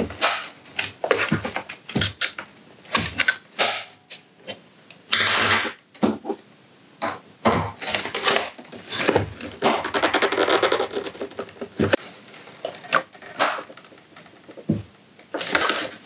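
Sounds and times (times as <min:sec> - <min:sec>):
plastic scraping: 0:07.8 - 0:16.0.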